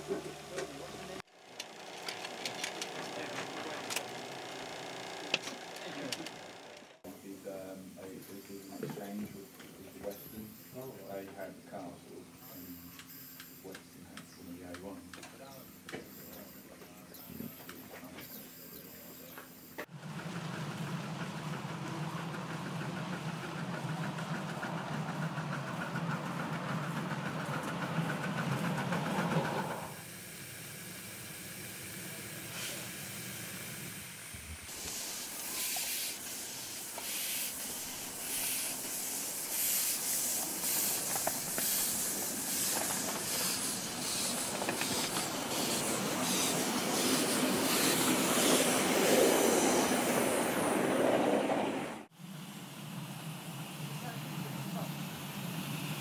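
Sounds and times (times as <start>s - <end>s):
steam locomotive hissing and chuffing: 0.0s - 56.0s.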